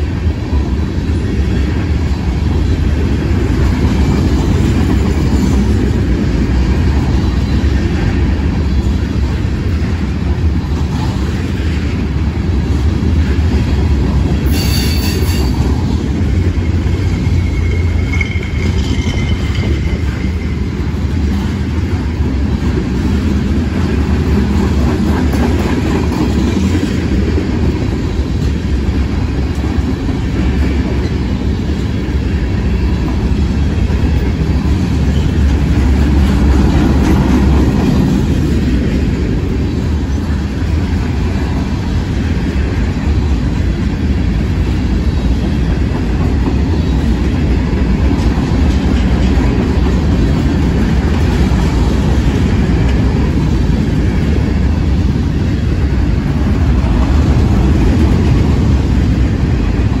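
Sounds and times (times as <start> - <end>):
train wheels rumbling on rail: 0.0 - 60.0
high wheel squeal: 14.5 - 15.6, 16.6 - 20.7.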